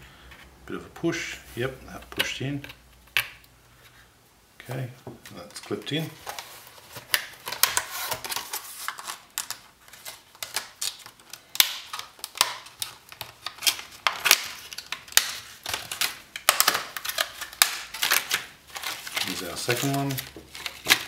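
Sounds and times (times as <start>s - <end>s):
plastic packaging clicks and taps: 2.0s - 3.5s, 7.0s - 21.0s.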